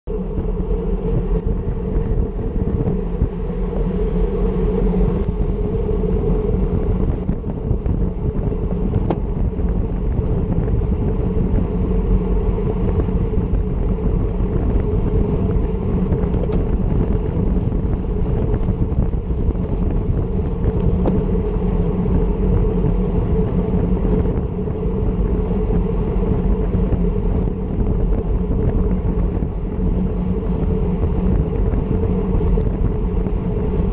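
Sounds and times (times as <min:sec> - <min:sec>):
road and tyre noise: 0:00.0 - 0:33.9
wind rumbling over microphone: 0:00.0 - 0:33.9.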